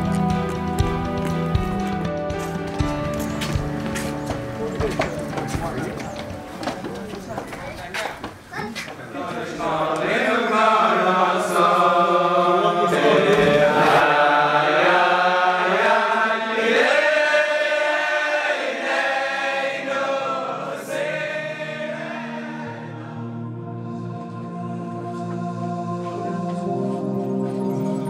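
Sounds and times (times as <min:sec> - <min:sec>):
held tone of background music: 0:00.0 - 0:07.1, 0:18.7 - 0:28.0
men singing a chant together: 0:09.2 - 0:22.0.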